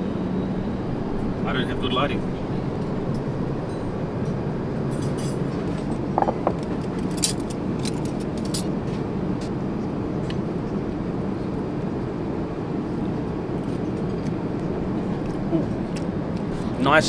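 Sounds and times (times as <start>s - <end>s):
airliner cabin noise: 0.0s - 17.0s
cutlery and tableware clinks: 4.9s - 8.7s.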